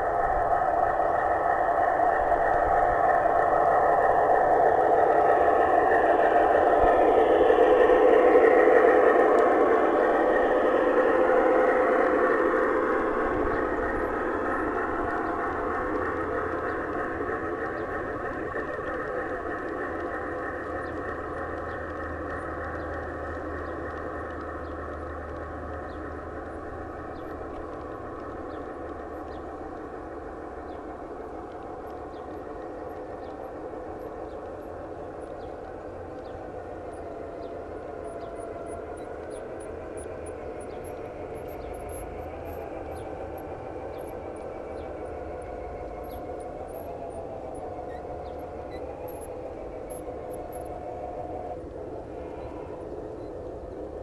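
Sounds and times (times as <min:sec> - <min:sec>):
model train humming drone: 0:00.0 - 0:54.0
wheel ticks: 0:00.0 - 0:54.0.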